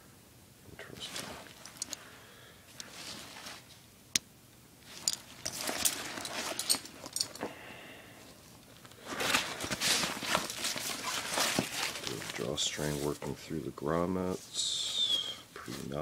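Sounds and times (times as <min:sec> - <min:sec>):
nylon fabric rustling: 0:01.0 - 0:02.0, 0:02.7 - 0:03.8, 0:04.8 - 0:07.4, 0:09.0 - 0:13.3.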